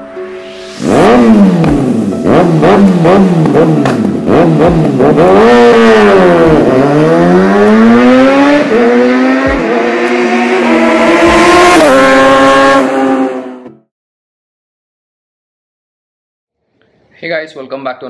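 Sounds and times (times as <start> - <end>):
motorcycle engine accelerating: 0.7 - 13.7.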